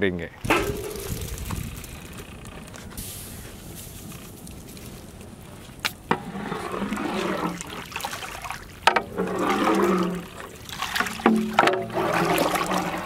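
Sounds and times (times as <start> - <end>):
soup sloshing in pot: 6.2 - 13.0.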